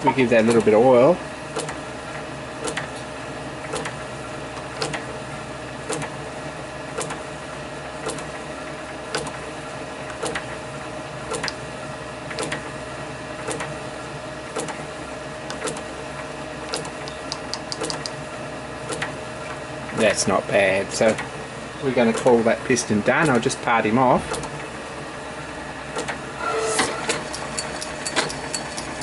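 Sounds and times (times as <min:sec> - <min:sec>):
sharp clicks: 0:11.3 - 0:11.6, 0:15.5 - 0:15.8, 0:16.7 - 0:18.2.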